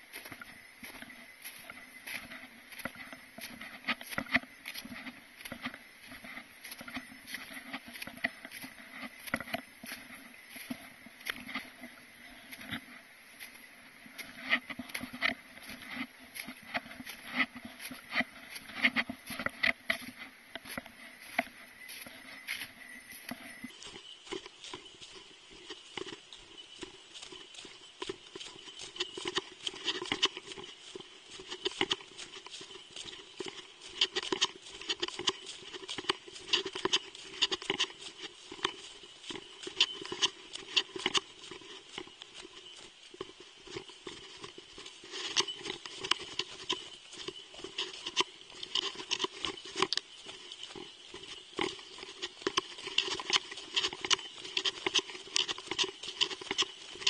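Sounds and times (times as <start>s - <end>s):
footsteps in snow: 0.0s - 57.0s.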